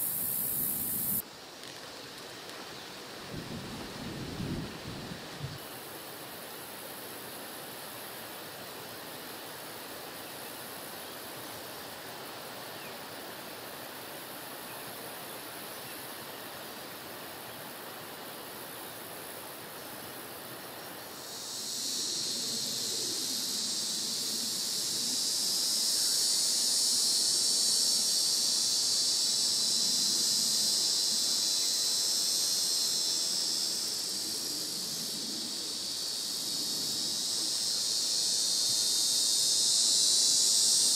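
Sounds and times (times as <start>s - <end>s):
high-pitched insect buzz: 0.0s - 1.8s, 17.5s - 40.9s.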